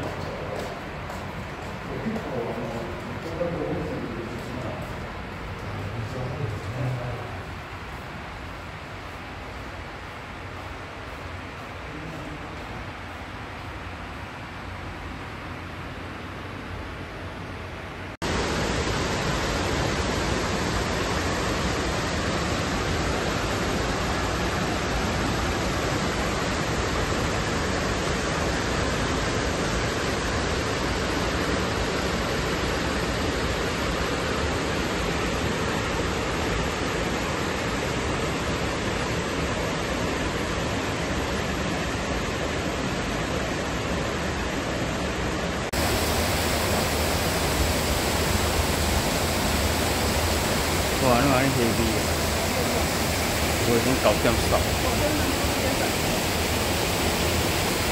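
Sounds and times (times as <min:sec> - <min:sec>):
stream rushing over rocks: 0:45.6 - 0:57.9.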